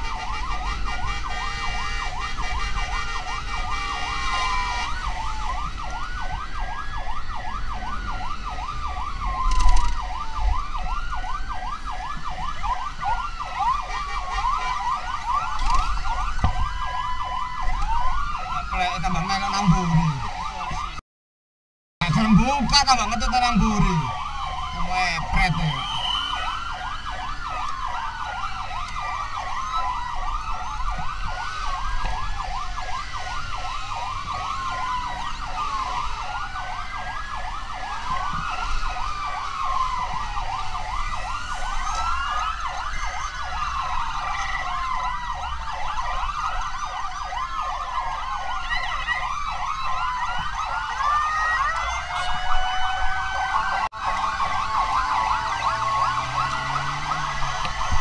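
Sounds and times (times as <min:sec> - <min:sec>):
emergency sirens wailing: 0:00.0 - 0:21.0, 0:22.0 - 0:58.0.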